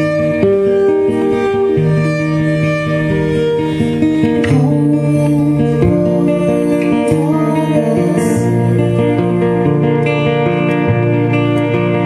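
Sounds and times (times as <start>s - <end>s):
folk guitar music: 0.0s - 12.0s.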